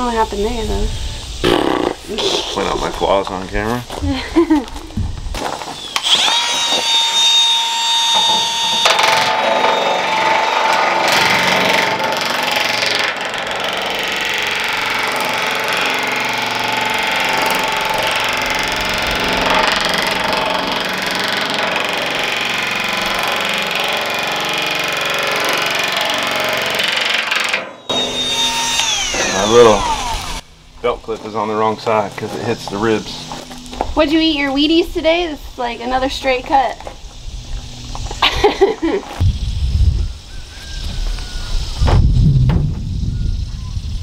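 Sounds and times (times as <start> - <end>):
power nibbler cutting metal: 5.8 - 30.4.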